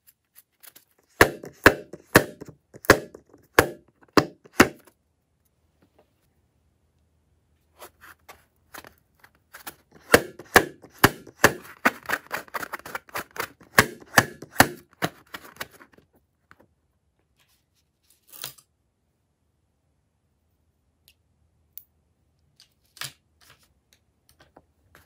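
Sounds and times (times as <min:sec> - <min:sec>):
fingers tapping a balloon: 0:01.2 - 0:04.8, 0:10.0 - 0:12.3.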